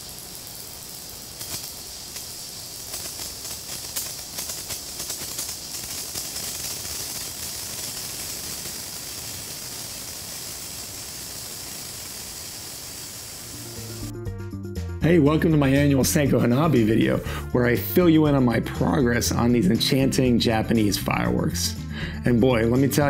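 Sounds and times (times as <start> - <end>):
sparkler crackles: 0.0 - 14.1, 15.6 - 17.2, 22.3 - 23.0
sparkler fizzing hiss: 0.0 - 14.1, 15.6 - 21.4.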